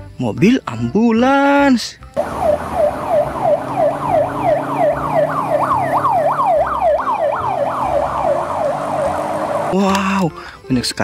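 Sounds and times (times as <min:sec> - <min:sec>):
ambulance siren yelping: 0:02.2 - 0:10.0.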